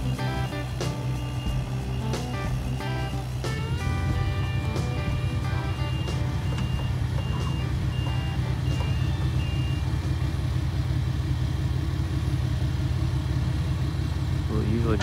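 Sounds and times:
backup alarm beeping: 0:00.0 - 0:10.2
diesel engines running: 0:00.0 - 0:15.0.

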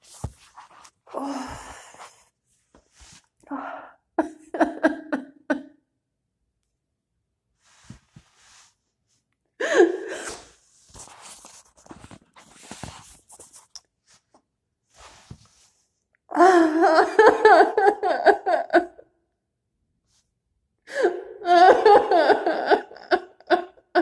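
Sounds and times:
woman sobbing: 0:03.5 - 0:05.8, 0:09.6 - 0:10.5, 0:16.3 - 0:19.1, 0:20.9 - 0:24.0.

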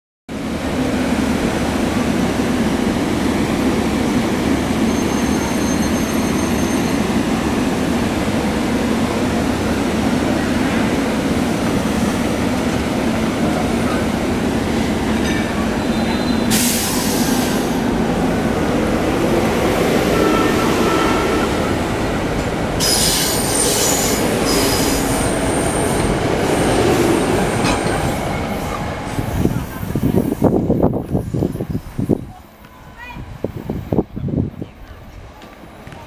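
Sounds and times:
train wheels rumbling: 0:00.5 - 0:36.0
high squeal: 0:04.8 - 0:07.1, 0:15.6 - 0:17.4, 0:22.8 - 0:26.7.

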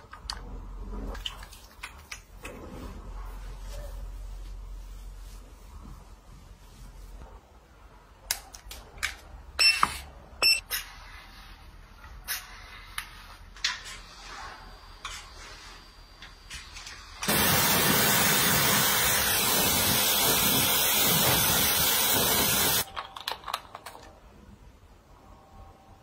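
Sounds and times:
hair dryer blowing: 0:17.3 - 0:22.8.

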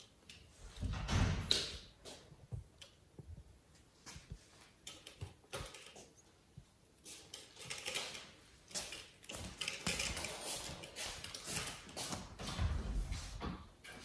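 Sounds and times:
playpen bars rattling: 0:07.1 - 0:12.0.

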